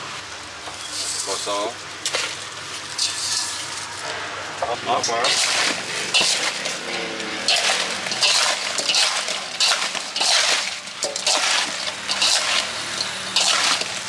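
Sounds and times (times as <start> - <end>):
metal spoon scraping metal bowl: 3.0 - 4.0, 5.2 - 14.0.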